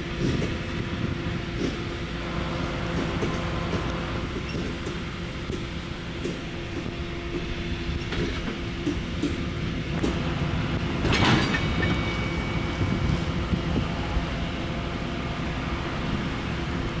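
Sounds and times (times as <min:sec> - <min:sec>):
train wheels rumbling on rails: 0:00.0 - 0:17.0
loud clunk: 0:11.0 - 0:12.2.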